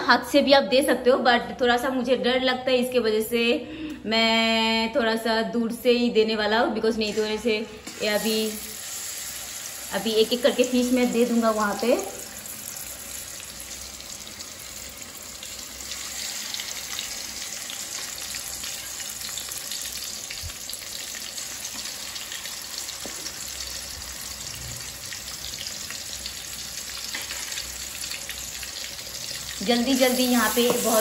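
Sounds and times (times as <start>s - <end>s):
fish sizzling in hot oil: 7.0s - 31.0s.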